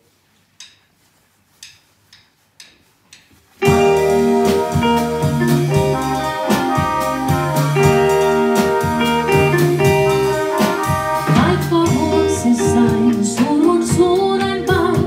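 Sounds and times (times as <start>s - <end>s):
jazz band with drums: 3.4s - 15.0s.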